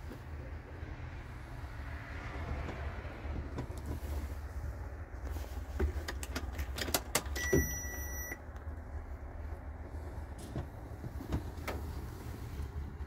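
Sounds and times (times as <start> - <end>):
low steady rumble: 0.0 - 13.0
electronic beep: 7.4 - 8.4.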